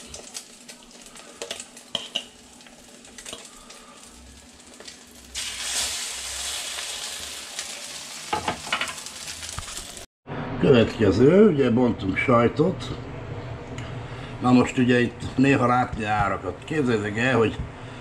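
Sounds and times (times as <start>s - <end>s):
bread sizzling in oil: 0.0s - 10.1s.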